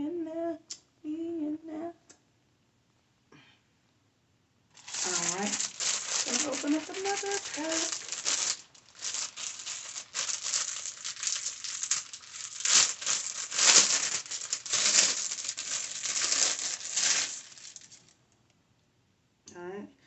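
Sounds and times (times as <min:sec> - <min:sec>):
packaging crinkling and rustling: 0:04.8 - 0:18.1.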